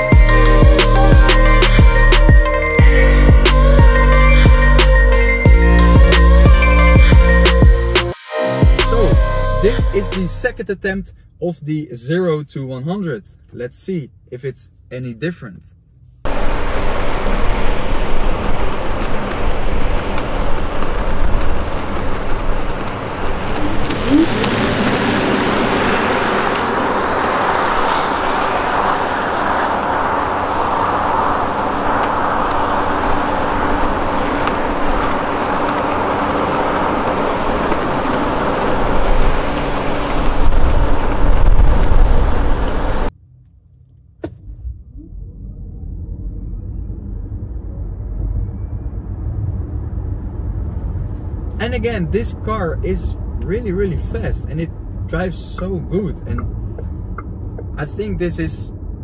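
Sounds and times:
tyre and road noise: 0:16.1 - 0:59.0.

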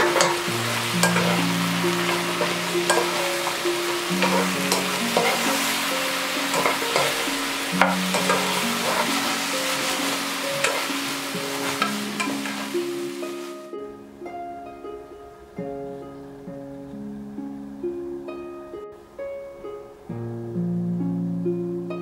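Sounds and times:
spatula clicking and scraping pan: 0:00.0 - 0:05.7, 0:06.4 - 0:11.0, 0:11.6 - 0:12.6
food sizzling in a pan: 0:00.0 - 0:13.7.

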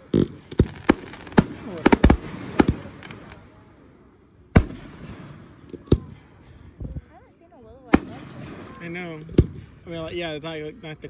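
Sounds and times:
fireworks banging: 0:00.0 - 0:03.5.

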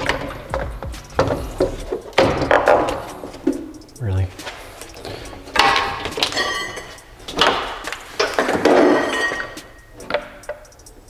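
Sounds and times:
plastic clattering and scraping: 0:05.0 - 0:10.6.

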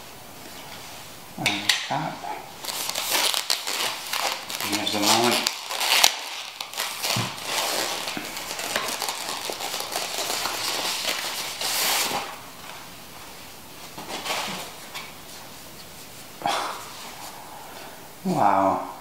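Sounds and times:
plastic bag rustling and crackling: 0:02.6 - 0:15.5.

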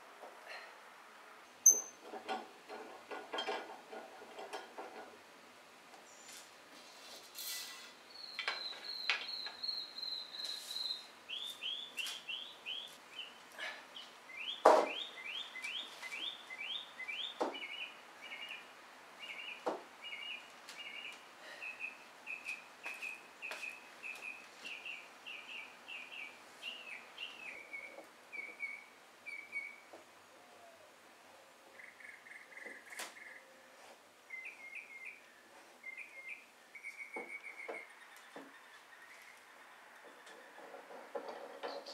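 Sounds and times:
songbird singing: 0:01.5 - 0:02.0, 0:08.0 - 0:41.9
sharp knocks of wooden boards: 0:14.6 - 0:15.0.

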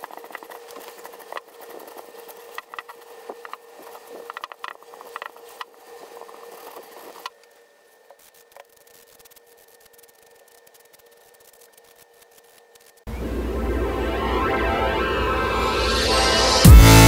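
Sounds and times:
cloth rag rubbing wood: 0:00.0 - 0:12.9
newspaper rustling: 0:00.0 - 0:13.0
small crinkling clicks: 0:00.0 - 0:13.1.

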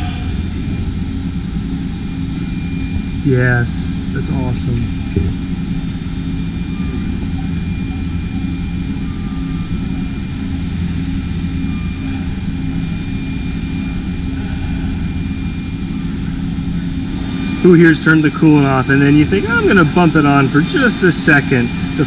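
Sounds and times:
milling machine whine and hum: 0:00.0 - 0:22.0
coolant spraying: 0:13.8 - 0:22.0.

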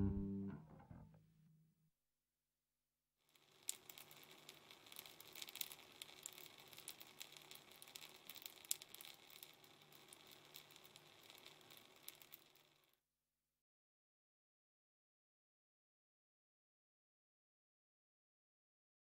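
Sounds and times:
low steady hum: 0:00.0 - 0:01.1.

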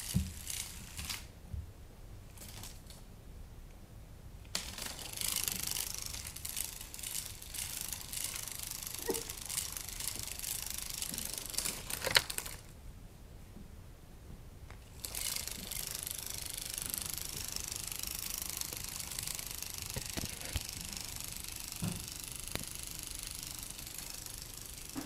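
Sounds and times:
toy wings rustling and crinkling: 0:04.6 - 0:12.7, 0:14.8 - 0:25.0.

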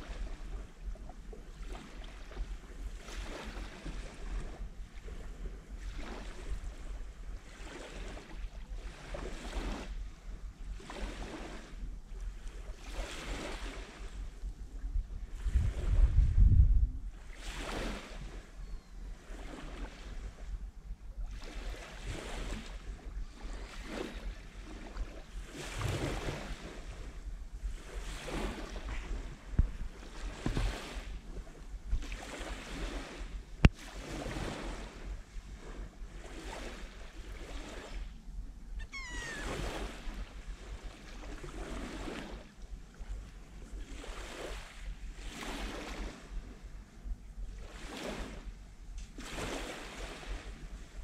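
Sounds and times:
small waves lapping on beach: 0:00.0 - 0:16.4, 0:17.1 - 0:51.0
wind rumble on microphone: 0:00.0 - 0:51.0
gull calling: 0:38.8 - 0:39.8.

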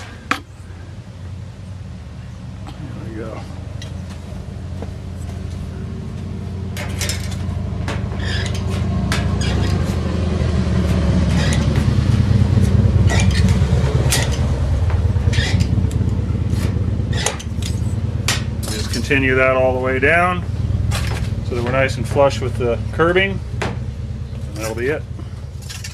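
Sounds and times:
shears snipping metal: 0:06.7 - 0:10.0, 0:13.1 - 0:14.6, 0:15.3 - 0:19.2, 0:24.5 - 0:25.0.

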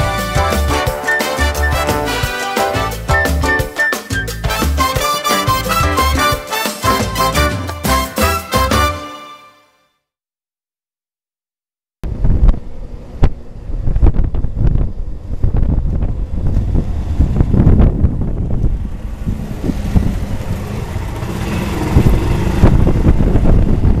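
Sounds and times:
wind buffeting microphone: 0:12.0 - 0:24.0.

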